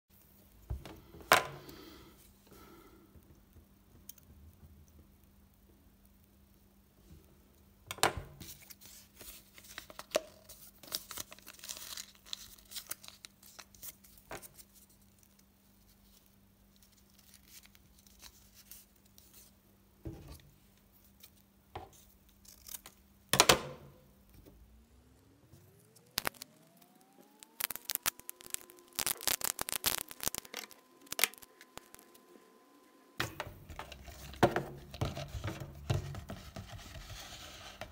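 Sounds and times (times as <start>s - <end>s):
faint steady hum: 0.1s - 37.9s
tape tearing: 22.3s - 23.0s, 27.4s - 32.2s.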